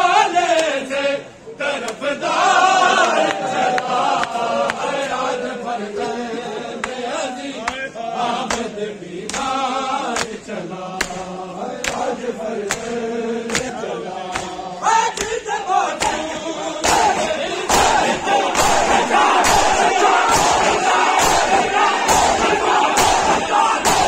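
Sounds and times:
men chanting in unison: 0.0 - 24.0
hand slaps on bare chests: 8.4 - 9.5, 10.1 - 10.4, 11.0 - 15.4, 16.0 - 24.0.

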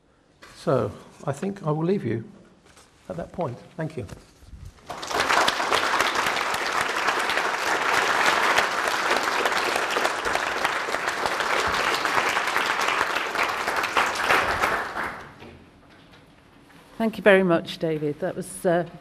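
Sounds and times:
audience applauding: 4.8 - 15.4.

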